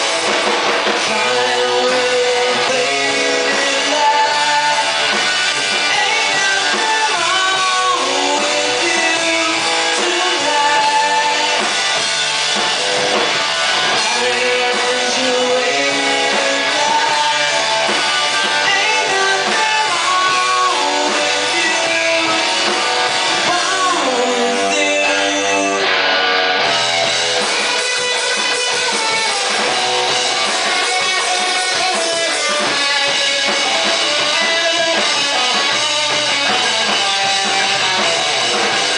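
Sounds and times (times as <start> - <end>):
bass guitar: 0.0 - 38.9
drum kit: 0.0 - 38.9
electric guitar: 0.0 - 38.9.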